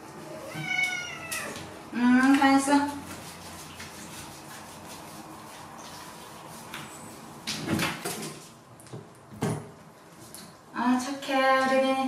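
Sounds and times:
water splashing and dripping: 0:02.9 - 0:08.0.

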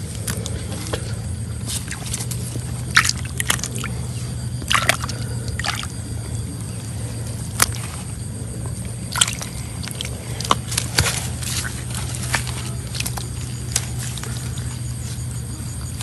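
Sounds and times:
low hum: 0:00.0 - 0:16.0
hands splashing in muddy water: 0:01.8 - 0:03.9, 0:04.7 - 0:05.9, 0:09.1 - 0:13.4.

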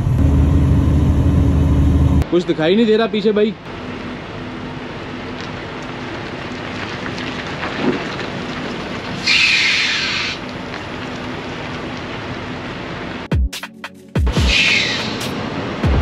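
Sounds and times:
truck diesel engine and tyres: 0:00.0 - 0:13.3, 0:14.3 - 0:16.0
air brakes hissing: 0:09.2 - 0:10.4, 0:14.5 - 0:15.4.

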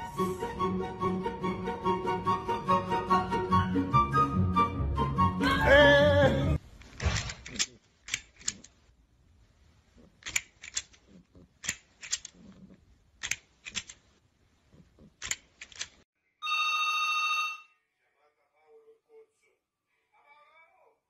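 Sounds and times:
toy grabber jaws clacking: 0:07.3 - 0:08.8, 0:10.2 - 0:12.6, 0:15.0 - 0:16.0
telephone electronic ring: 0:16.4 - 0:17.7.

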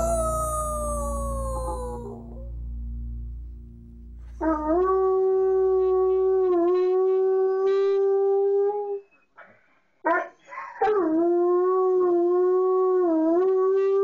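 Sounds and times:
dog howling: 0:00.0 - 0:02.6.

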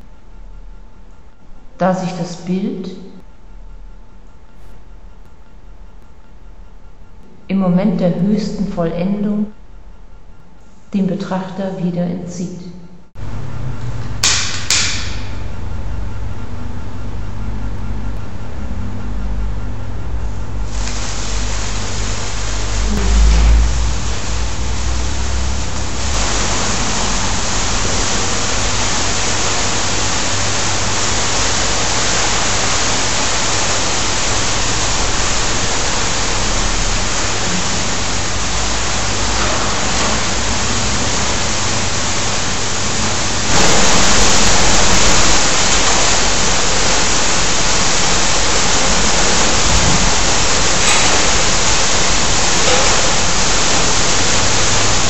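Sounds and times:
sparklers fizzing: 0:20.7 - 0:23.0, 0:24.0 - 0:40.0, 0:43.2 - 0:55.0.

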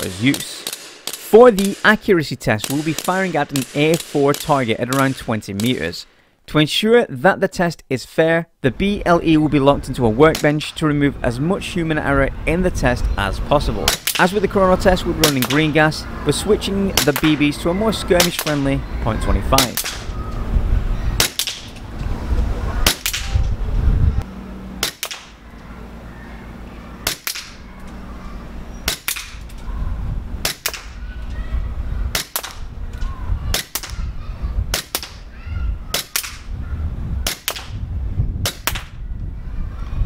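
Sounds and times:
airsoft pistol shots: 0:00.0 - 0:02.0, 0:02.6 - 0:05.8, 0:13.9 - 0:14.3, 0:15.2 - 0:15.7, 0:17.0 - 0:17.4, 0:18.2 - 0:18.7, 0:19.6 - 0:20.1, 0:21.2 - 0:21.7, 0:22.8 - 0:23.3, 0:24.8 - 0:25.4, 0:27.0 - 0:27.6, 0:28.8 - 0:29.4, 0:30.4 - 0:31.0, 0:32.1 - 0:32.6, 0:34.7 - 0:35.2, 0:35.9 - 0:36.5, 0:37.2 - 0:37.8, 0:38.4 - 0:39.0
pistol slide cycling: 0:00.1 - 0:02.0, 0:27.0 - 0:28.0, 0:28.8 - 0:29.7.

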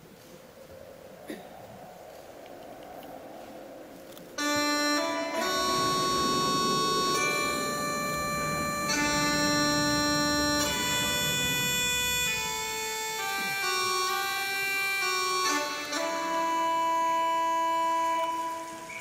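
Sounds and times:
low rumbling layer: 0:00.0 - 0:16.8
faint hall murmur: 0:01.2 - 0:19.0
electronic organ chords: 0:04.4 - 0:19.0.

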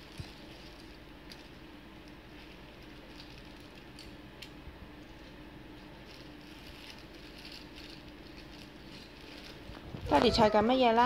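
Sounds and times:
plastic bag rustling: 0:00.0 - 0:01.1, 0:02.2 - 0:04.0, 0:05.1 - 0:11.0
low steady hum: 0:00.0 - 0:11.0.

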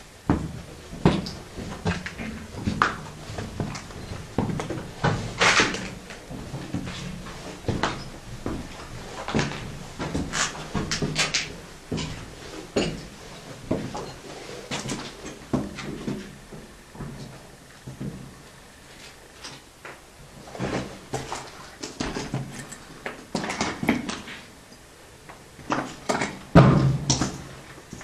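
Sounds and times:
footsteps crunching on rubble: 0:00.3 - 0:17.3.

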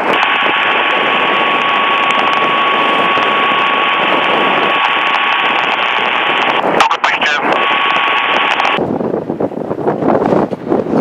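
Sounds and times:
radio static hiss: 0:00.0 - 0:08.8
radio click: 0:00.1 - 0:08.8.

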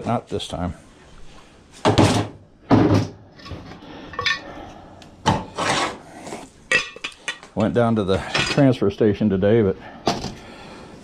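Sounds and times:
knocks and scrapes: 0:05.3 - 0:07.5.

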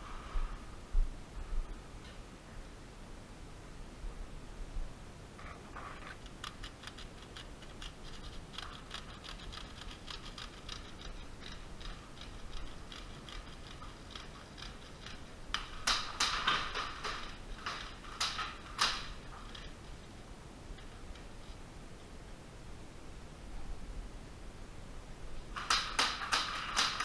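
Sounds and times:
pellets hitting sharp cracks: 0:06.2 - 0:19.8, 0:25.6 - 0:27.0.

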